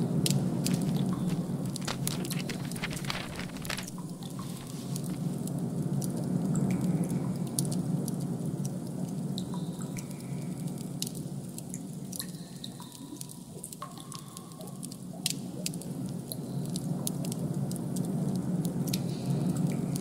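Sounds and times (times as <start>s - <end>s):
low droning hum: 0.0s - 8.6s.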